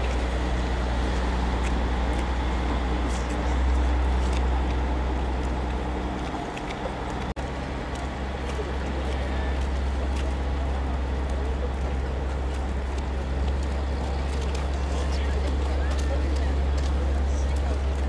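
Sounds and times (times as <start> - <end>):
outdoor background noise: 0.0 - 18.0
strong low hum: 0.0 - 18.0.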